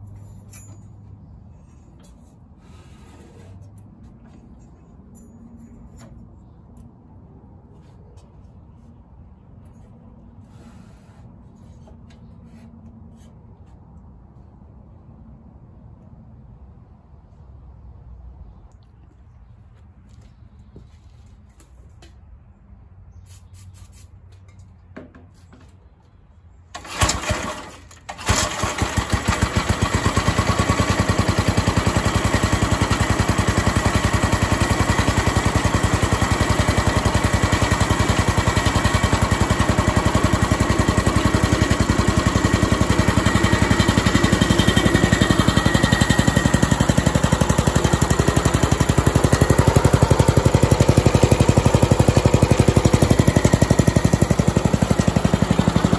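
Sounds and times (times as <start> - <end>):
small engine starting and puttering: 26.7 - 55.9.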